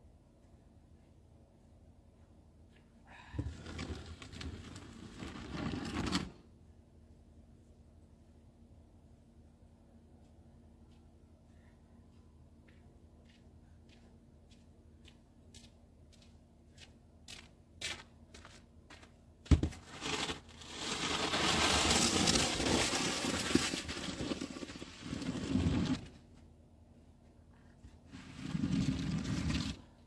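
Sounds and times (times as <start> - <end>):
snow shovel scraping pavement: 3.5 - 6.4, 19.6 - 26.2, 28.1 - 29.9.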